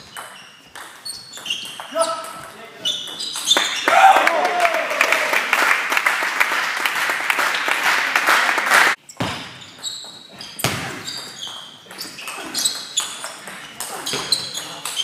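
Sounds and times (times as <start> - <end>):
spectators applauding: 3.6 - 9.0.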